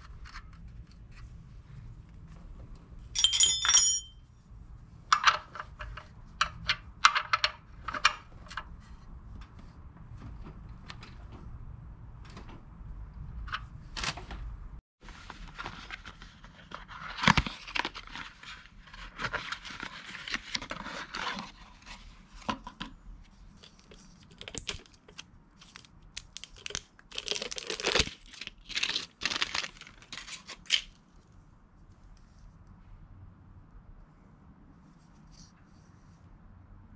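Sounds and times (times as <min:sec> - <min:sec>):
packaging crinkling and rustling: 0:15.1 - 0:22.0, 0:23.6 - 0:31.0.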